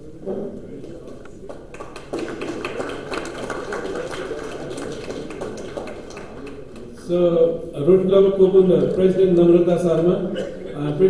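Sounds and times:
people clapping: 0.8s - 7.1s.

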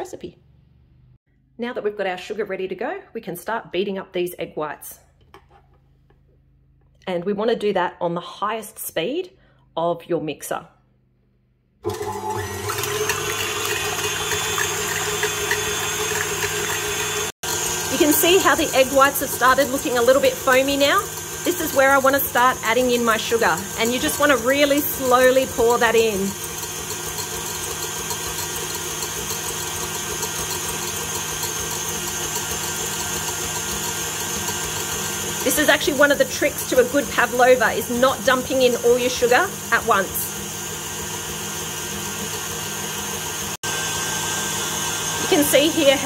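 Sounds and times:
electric mixer whipping: 11.8s - 46.0s.

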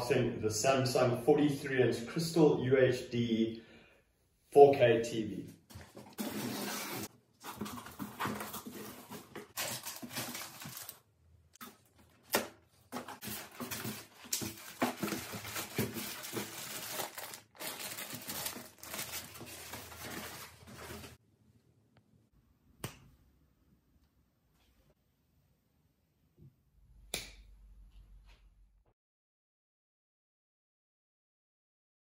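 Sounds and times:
cardboard and polystyrene scraping: 6.0s - 11.0s, 13.0s - 21.2s
plastic bags crinkling: 6.2s - 12.3s, 13.0s - 21.2s.

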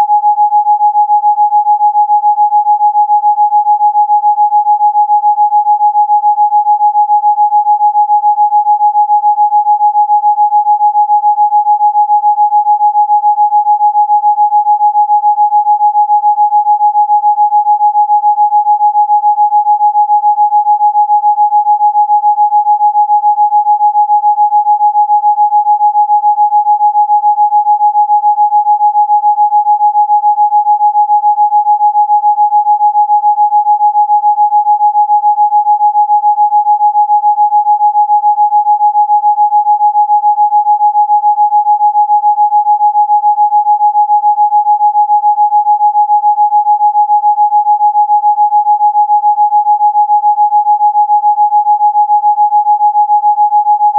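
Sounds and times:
steady sine-wave tone: 0.0s - 19.6s.

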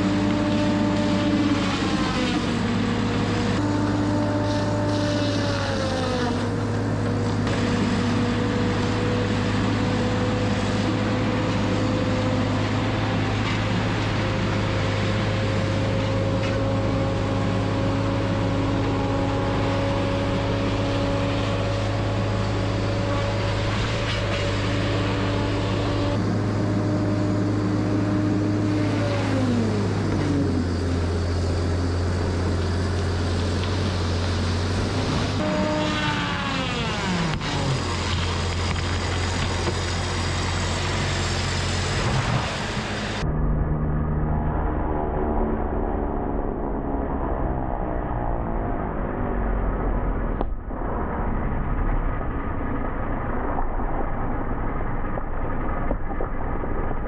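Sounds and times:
saw head whining: 0.0s - 43.5s
low engine hum: 0.0s - 57.0s.

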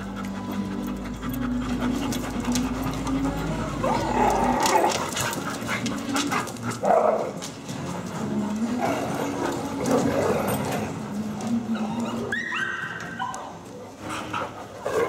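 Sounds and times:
dogs vocalising while playing: 0.0s - 15.0s
dog whining: 8.9s - 14.4s.

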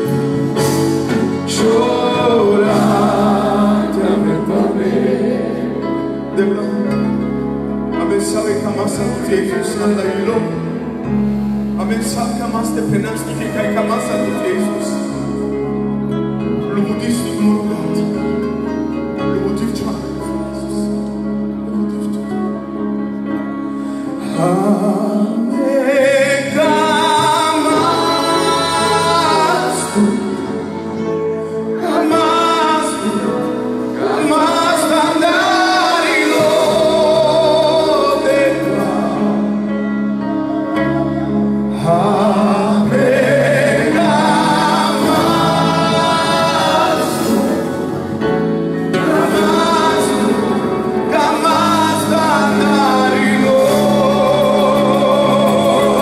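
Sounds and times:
men singing gospel: 0.0s - 6.9s, 24.2s - 31.1s, 31.8s - 40.1s, 41.1s - 56.0s
held accompanying chords: 0.0s - 56.0s.

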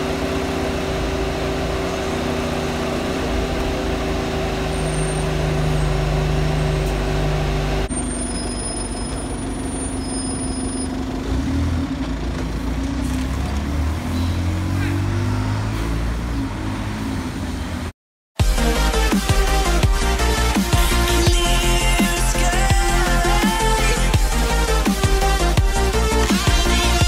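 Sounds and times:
street traffic: 0.0s - 18.6s
bus engine running: 0.0s - 27.0s.

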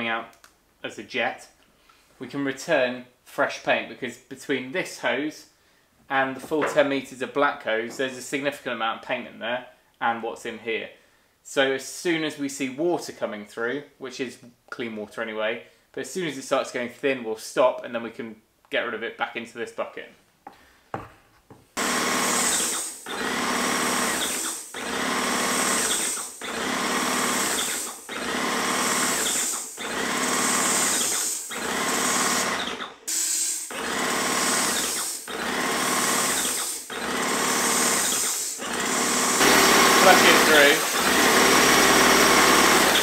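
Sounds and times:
paint sprayer pump motor pulsing: 21.8s - 43.0s.

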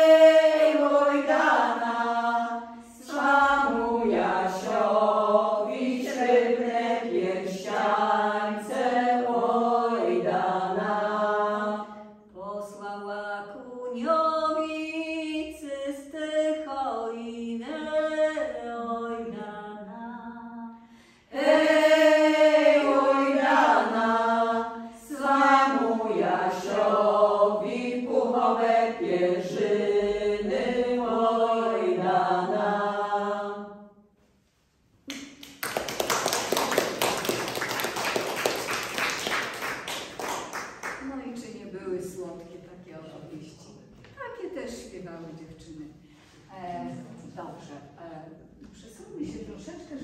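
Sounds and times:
women singing unaccompanied: 0.0s - 20.7s, 21.3s - 33.8s
audience applauding: 35.1s - 41.0s.

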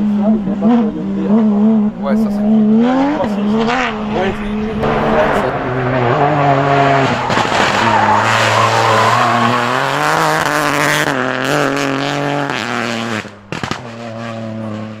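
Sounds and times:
rally car engine at high revs: 0.0s - 15.0s
exhaust cracks: 3.1s - 15.0s.

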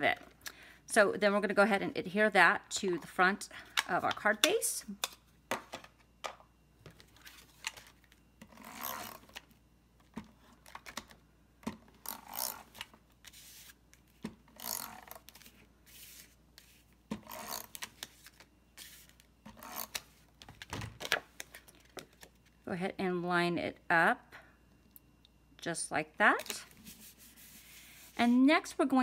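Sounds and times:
tape runner scratchy zip: 8.5s - 9.4s, 12.0s - 12.8s, 14.5s - 15.3s, 17.2s - 17.9s, 19.5s - 20.0s.

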